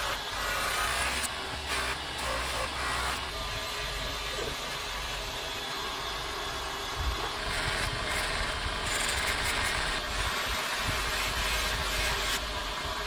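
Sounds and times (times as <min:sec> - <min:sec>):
bench grinder polishing a blade: 0:00.0 - 0:04.9, 0:07.2 - 0:13.0.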